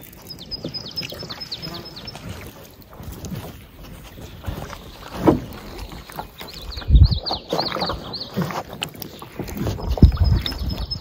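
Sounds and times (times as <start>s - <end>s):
bird chirping: 0.0s - 2.5s, 4.5s - 11.0s
water splashing from paddle strokes: 0.0s - 11.0s
paddle knocking against hull: 3.8s - 6.2s.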